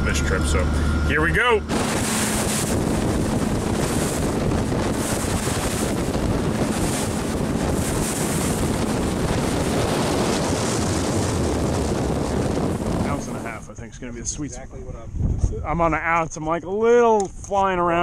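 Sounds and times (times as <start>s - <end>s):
boat engine humming: 0.0s - 13.8s
water rushing past boat: 0.0s - 13.8s
wind buffeting microphone: 0.0s - 18.0s.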